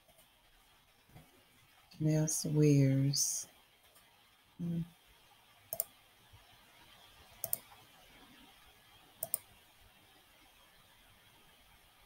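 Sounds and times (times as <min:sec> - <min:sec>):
computer mouse double clicks: 0:07.4 - 0:07.6, 0:09.2 - 0:09.4.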